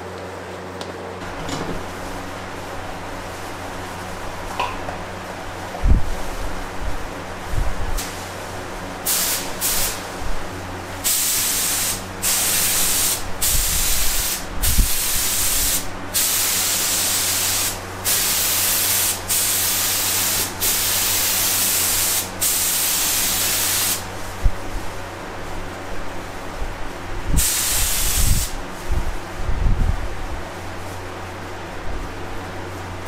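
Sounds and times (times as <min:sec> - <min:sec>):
paint spray gun hissing: 0:09.0 - 0:10.1, 0:11.0 - 0:24.1, 0:27.4 - 0:28.6.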